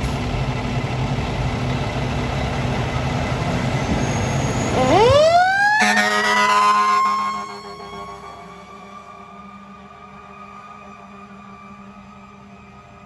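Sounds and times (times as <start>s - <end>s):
diesel engine running: 0.0s - 13.0s
siren winding up: 4.6s - 9.2s
air horn blast: 5.7s - 9.0s.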